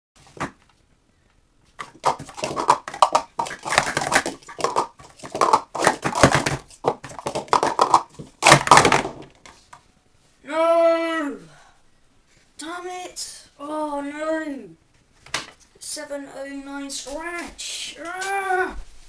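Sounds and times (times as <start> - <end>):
cups toppling over: 1.8 - 9.2
plastic cups clacking together: 1.8 - 9.4.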